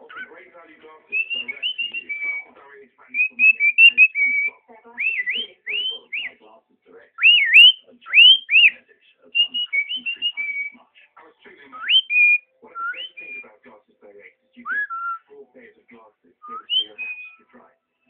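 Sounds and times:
cockatiel whistling: 0:01.1 - 0:02.5, 0:03.1 - 0:06.4, 0:07.2 - 0:08.8, 0:09.4 - 0:10.8, 0:11.8 - 0:13.5, 0:14.7 - 0:15.3, 0:16.4 - 0:17.4.

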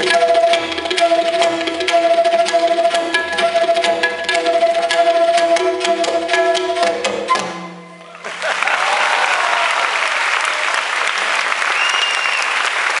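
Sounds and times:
tabla strokes: 0:00.0 - 0:08.2
audience applauding: 0:08.0 - 0:13.0.

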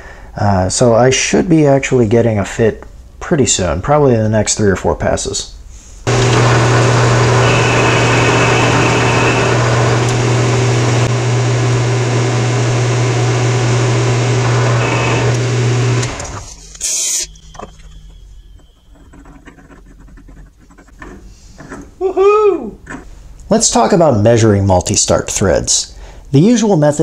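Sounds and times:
metal lathe whirring: 0:06.1 - 0:19.3.

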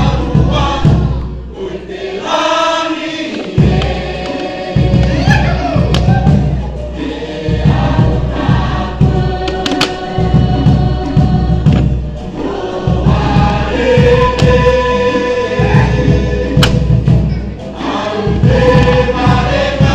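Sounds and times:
fast drum rhythm: 0:00.0 - 0:01.2, 0:03.4 - 0:19.9
group singing: 0:00.0 - 0:19.9.

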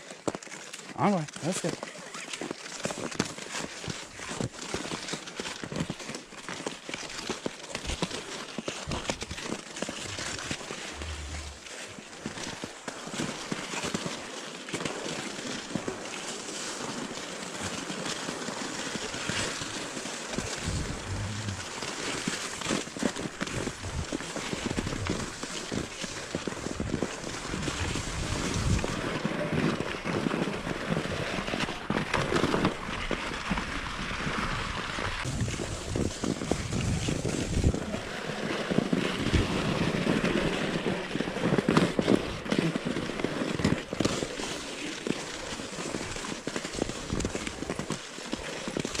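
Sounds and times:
wind rumbling on microphone: 0:10.0 - 0:11.7, 0:20.3 - 0:29.3, 0:34.3 - 0:38.1
footsteps crunching on crusty snow: 0:17.8 - 0:29.6.

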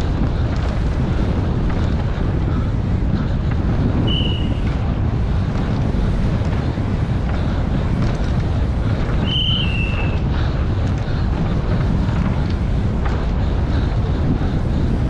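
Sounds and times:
wind buffeting on microphone: 0:00.0 - 0:15.0.

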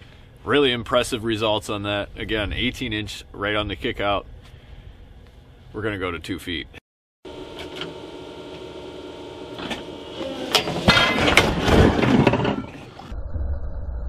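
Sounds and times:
engine running: 0:07.2 - 0:13.1
metal clanking and rattling: 0:10.5 - 0:13.0
heavy crash onto boulder: 0:10.8 - 0:12.8.

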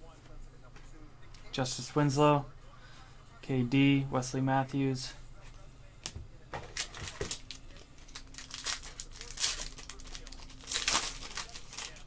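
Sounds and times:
foil wrappers crinkling and tearing: 0:06.7 - 0:12.0.

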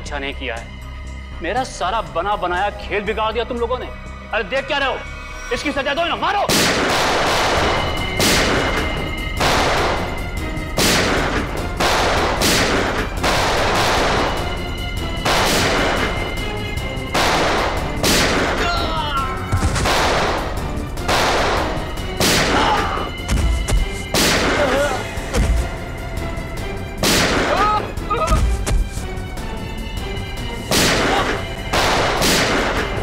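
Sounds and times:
pistol gunshots: 0:06.5 - 0:10.2, 0:10.8 - 0:16.2, 0:17.1 - 0:18.6, 0:19.6 - 0:22.7, 0:24.1 - 0:24.7, 0:27.0 - 0:27.6, 0:30.7 - 0:33.0.

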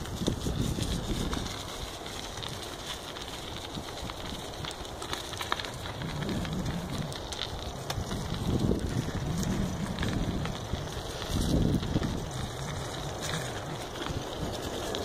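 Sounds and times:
wind on microphone: 0:00.0 - 0:02.5, 0:05.7 - 0:15.0
bicycle rattling on dirt trail: 0:00.0 - 0:15.0
low rumble: 0:05.5 - 0:15.0.

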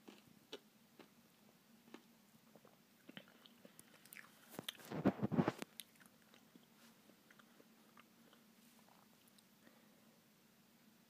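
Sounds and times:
chewing and crunching candy: 0:00.0 - 0:01.2, 0:01.9 - 0:05.0, 0:05.6 - 0:09.5.

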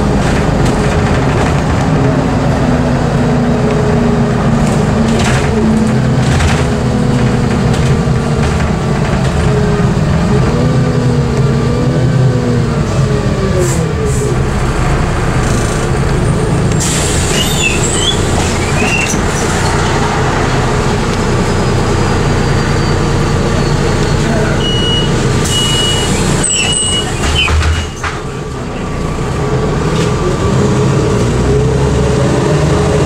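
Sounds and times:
bus engine and road rumble: 0:00.0 - 0:33.0.

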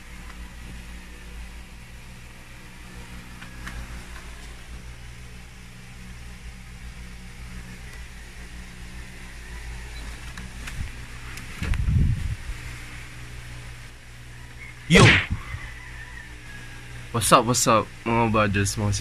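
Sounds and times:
low mechanical hum: 0:00.0 - 0:19.0
even hiss: 0:14.9 - 0:15.6.

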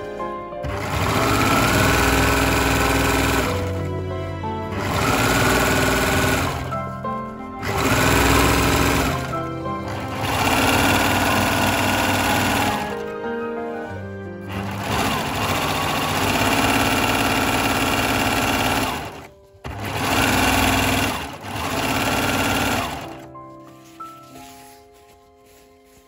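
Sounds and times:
overlock sewing machine running: 0:00.6 - 0:04.0, 0:04.6 - 0:06.8, 0:07.6 - 0:13.2, 0:14.5 - 0:23.8.

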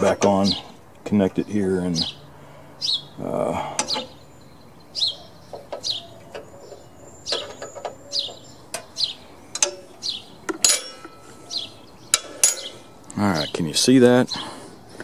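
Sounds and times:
bird chirping: 0:00.0 - 0:15.0
wrenches clinking on steel: 0:05.6 - 0:09.9, 0:10.5 - 0:13.0.

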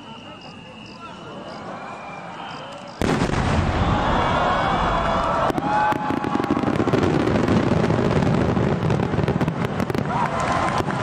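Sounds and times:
firework crackles: 0:02.7 - 0:11.0
firework boom rumbling: 0:03.0 - 0:11.0.

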